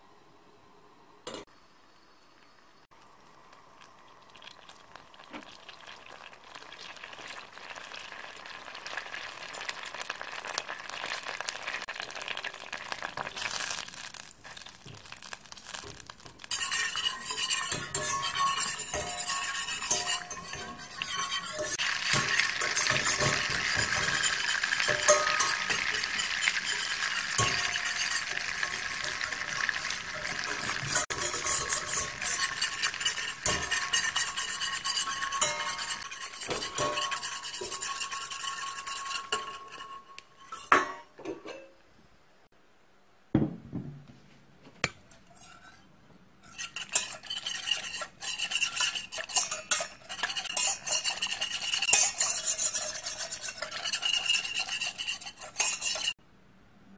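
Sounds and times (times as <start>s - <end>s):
butter sizzling and foaming: 2.9s - 40.8s, 46.4s - 56.2s
whisk stirring in saucepan: 4.4s - 40.9s, 44.8s - 56.2s.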